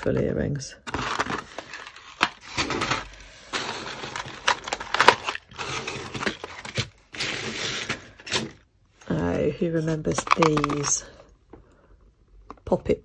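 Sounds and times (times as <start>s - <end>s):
plastic crinkling and rustling: 0.8s - 8.6s, 9.8s - 11.2s.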